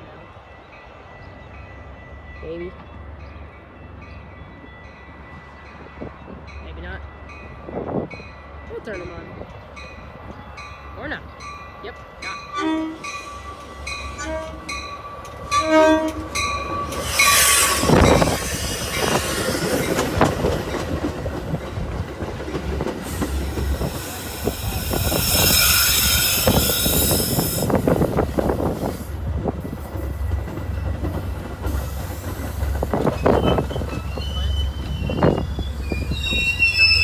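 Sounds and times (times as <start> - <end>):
train bell dinging: 0.0 - 21.9
train cars rumbling: 0.0 - 37.0
train passing rush: 0.0 - 37.0
high hiss or squeal: 24.0 - 27.7.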